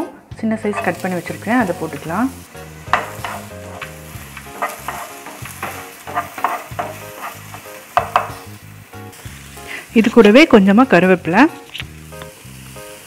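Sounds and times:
onion sizzling in oil: 0.4 - 13.0
spatula scraping pan: 0.6 - 2.2, 2.8 - 8.5.

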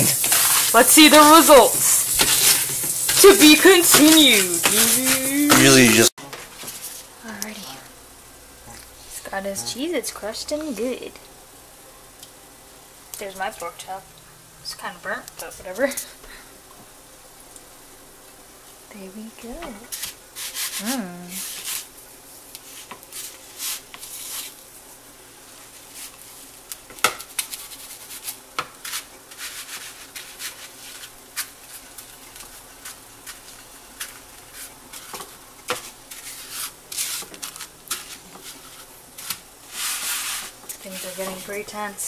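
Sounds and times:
rustles and scrapes in a plastic bowl: 6.4 - 7.8, 19.9 - 21.9, 22.6 - 24.6, 25.6 - 26.5, 27.5 - 42.0.

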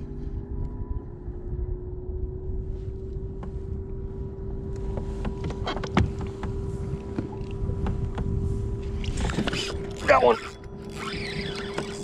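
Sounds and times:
low rumble: 0.0 - 11.0
sharp clicks and knocks of gear: 4.6 - 12.0
electric motor whining: 4.7 - 12.0.

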